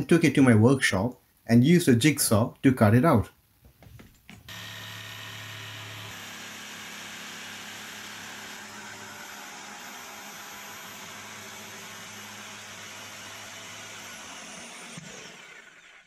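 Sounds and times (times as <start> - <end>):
power tool motor humming: 4.5 - 15.9.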